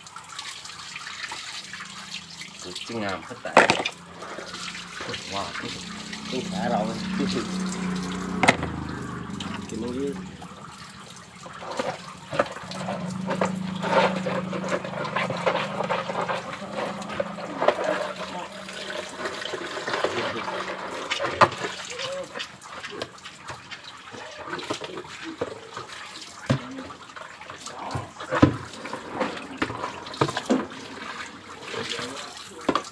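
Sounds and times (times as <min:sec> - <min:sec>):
water splashing on concrete: 0:00.0 - 0:32.9
knocks and scrapes: 0:03.5 - 0:21.7.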